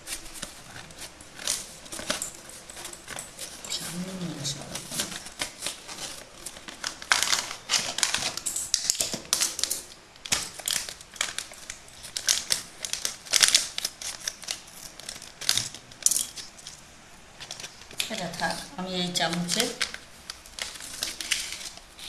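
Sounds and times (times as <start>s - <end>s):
packaging crinkling and rustling: 0.0s - 22.0s.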